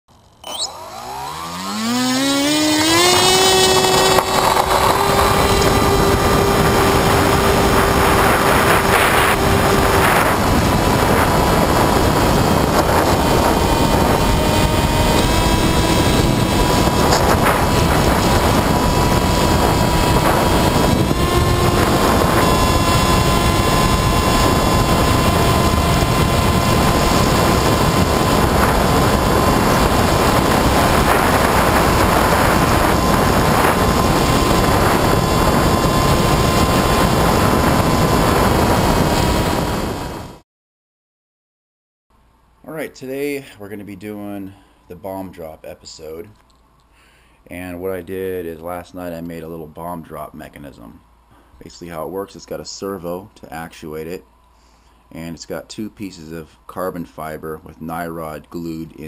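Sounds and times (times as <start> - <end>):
electric motor whine: 0.1 - 40.4
wind rush on microphone: 2.0 - 40.4.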